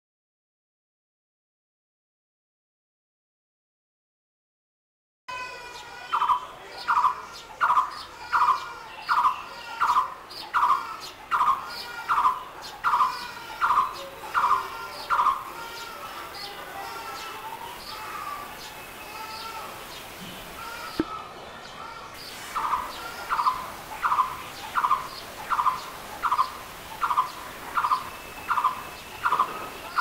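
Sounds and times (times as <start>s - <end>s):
bird calling rhythmic notes: 5.7s - 30.0s
high bird chirps: 22.2s - 30.0s.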